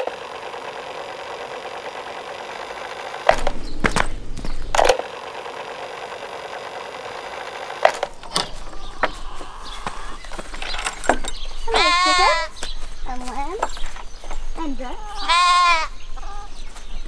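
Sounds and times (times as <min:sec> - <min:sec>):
footsteps: 0:03.3 - 0:04.9, 0:07.8 - 0:14.9.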